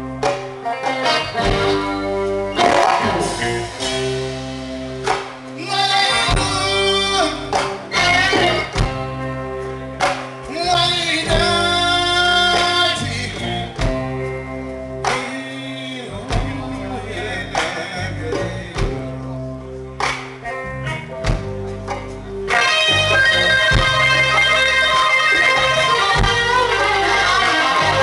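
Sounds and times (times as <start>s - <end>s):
bass guitar: 0.0s - 28.0s
drum kit: 0.0s - 28.0s
electric guitar: 0.0s - 28.0s
man singing: 5.6s - 8.8s, 10.4s - 14.2s, 15.0s - 19.4s.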